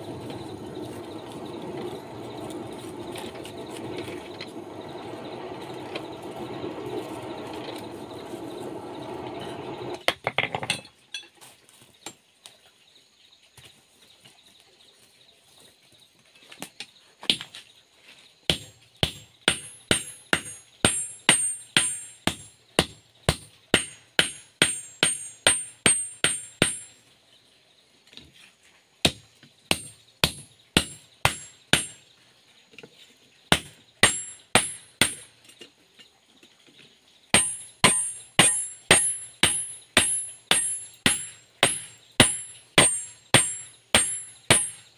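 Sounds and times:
hammer striking anvil: 18.5s - 26.9s, 29.7s - 32.0s, 33.5s - 35.3s, 37.4s - 44.9s.

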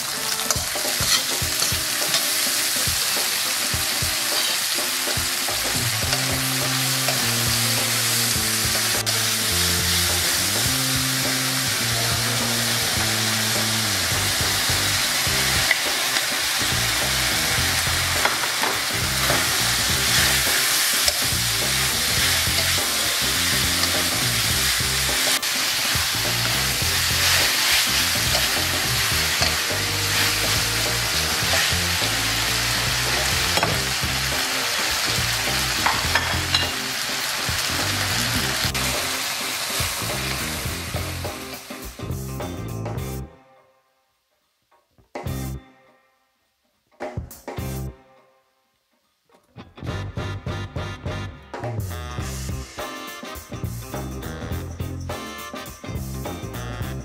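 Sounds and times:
meat sizzling in wok: 0.0s - 42.6s.

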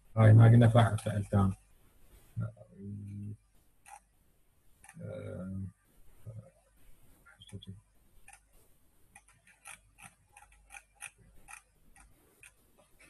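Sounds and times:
mouse scroll wheel clicking: 3.8s - 4.1s, 8.2s - 8.5s, 9.1s - 13.0s.

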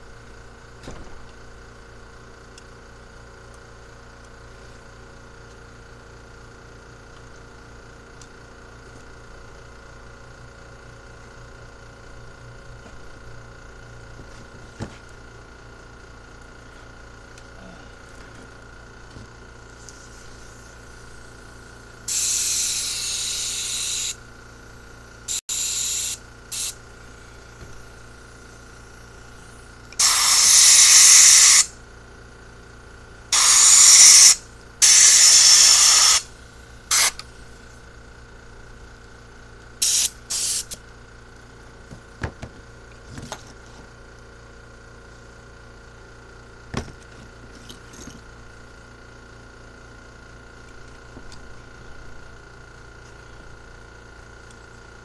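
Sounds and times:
air blow gun hissing blasts: 22.1s - 24.2s, 25.3s - 27.6s, 28.6s - 31.7s, 33.3s - 36.3s, 39.8s - 40.8s.

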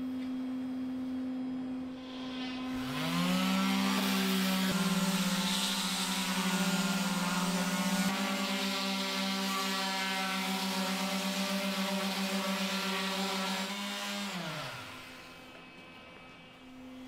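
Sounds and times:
orbital sander motor hum: 2.1s - 15.5s.

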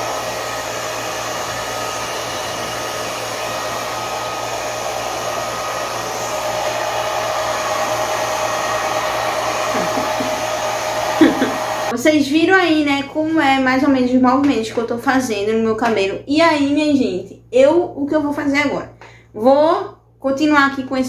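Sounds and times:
hair dryer blowing: 0.0s - 12.0s.

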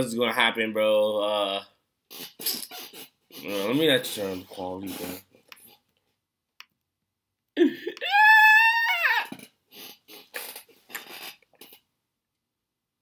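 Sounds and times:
person yelling: 8.0s - 9.3s.

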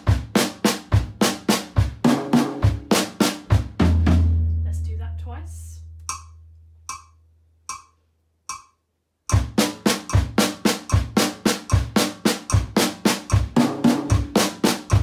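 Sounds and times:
snare drum triplets: 0.0s - 4.4s, 9.3s - 15.0s
bass drum thumps: 3.5s - 4.6s
metronome clicks: 6.0s - 15.0s.

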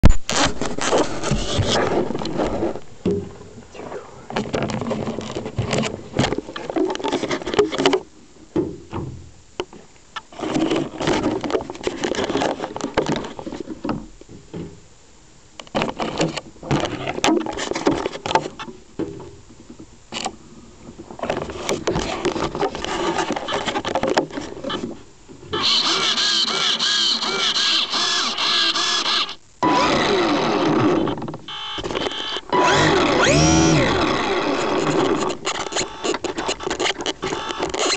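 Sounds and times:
rc plane electric motor whine: 25.6s - 37.9s.

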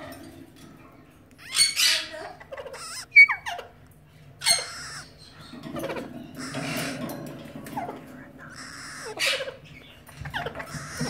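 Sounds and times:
parrot squawks: 1.4s - 3.8s, 4.4s - 5.3s, 6.4s - 7.0s, 7.8s - 11.0s.

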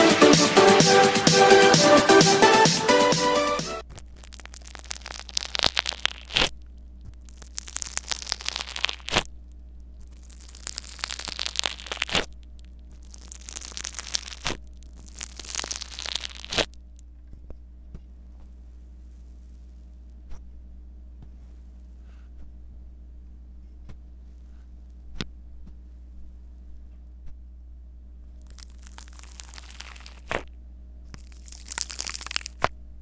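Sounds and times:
beads crunching under metal tool: 3.8s - 9.3s, 10.0s - 16.8s, 28.4s - 30.4s, 31.1s - 32.7s.

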